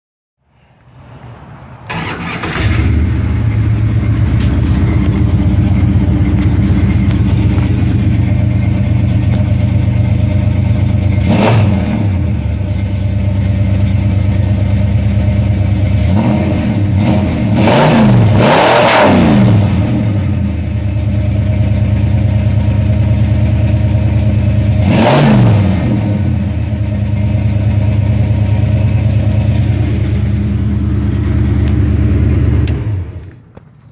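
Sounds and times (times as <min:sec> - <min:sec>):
car engine starting and idling: 0:00.6 - 0:33.9
engine throttle revs: 0:01.8 - 0:12.7, 0:15.9 - 0:20.5, 0:24.8 - 0:26.9.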